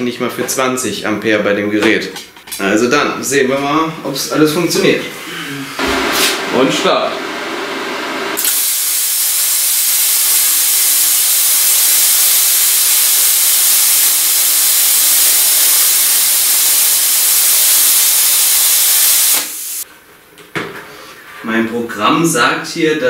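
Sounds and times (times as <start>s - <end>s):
plasma cutter arc hissing: 8.4s - 19.8s.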